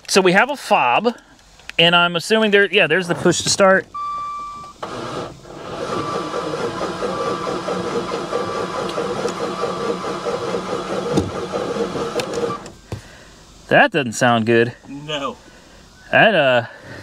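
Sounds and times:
engine starter cranking: 0:04.7 - 0:12.8.

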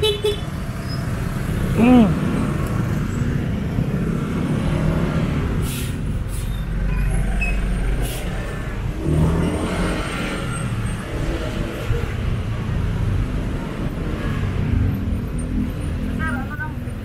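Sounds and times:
road and wind noise: 0:00.0 - 0:17.0
short hisses: 0:05.6 - 0:06.5.

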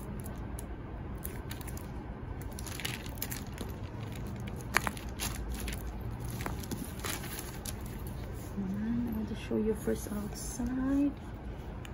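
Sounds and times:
tissue paper rustling: 0:02.6 - 0:08.7.

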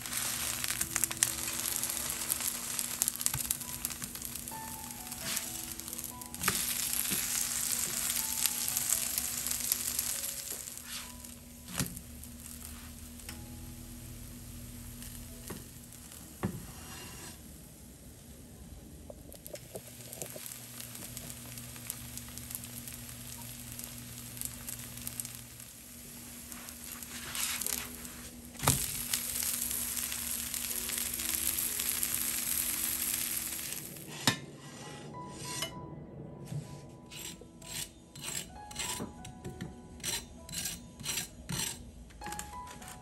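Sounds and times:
pancake sizzling in oil: 0:00.0 - 0:18.0, 0:19.4 - 0:34.0
spatula scraping pan: 0:16.4 - 0:17.4, 0:34.0 - 0:35.7, 0:37.1 - 0:39.1, 0:40.0 - 0:41.8.

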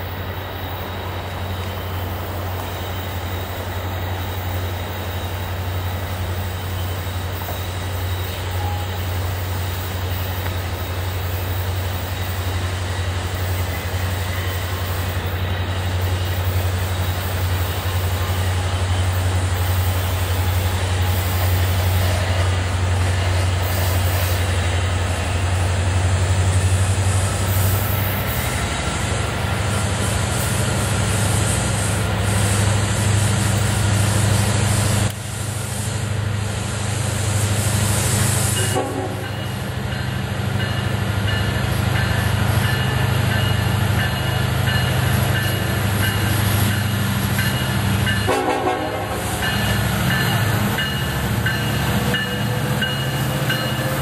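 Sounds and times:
diesel locomotive engines droning: 0:00.0 - 0:54.0
train horn: 0:08.1 - 0:09.3, 0:38.6 - 0:39.4, 0:48.2 - 0:49.4.

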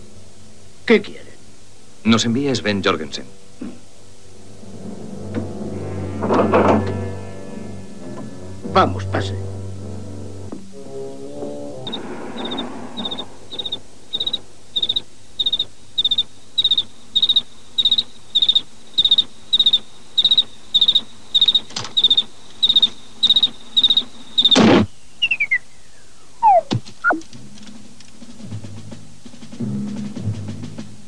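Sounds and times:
falling squeaks: 0:10.7 - 0:25.6, 0:26.4 - 0:27.2
cricket chirping: 0:11.8 - 0:28.3.

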